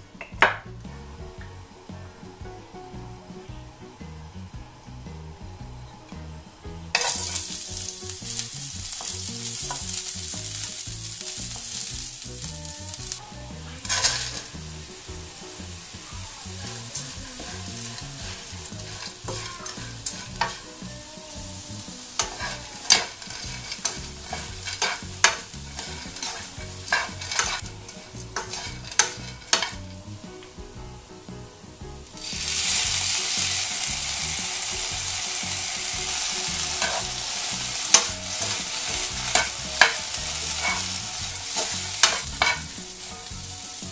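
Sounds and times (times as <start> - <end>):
food sizzling in hot oil: 0.0 - 43.9
chopsticks scraping a pan: 7.0 - 30.2, 32.1 - 43.9.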